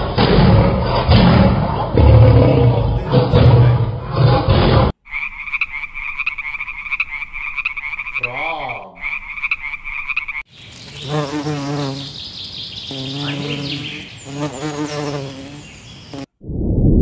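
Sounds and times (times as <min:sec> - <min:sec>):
frog calling in pulsing trill: 0:05.1 - 0:10.4
honeybees buzzing: 0:10.4 - 0:16.3.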